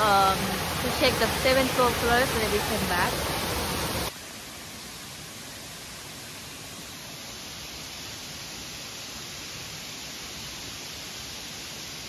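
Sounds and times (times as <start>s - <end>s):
waterfall rushing: 0.0s - 4.5s.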